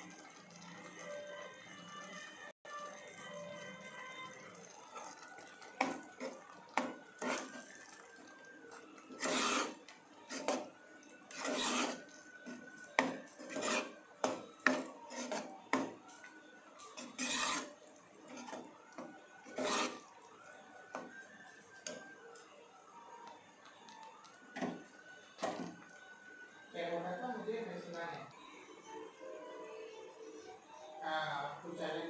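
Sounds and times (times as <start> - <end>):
ladle scraping a pot: 5.8 - 7.7, 9.0 - 10.7, 11.3 - 16.2, 16.9 - 20.1.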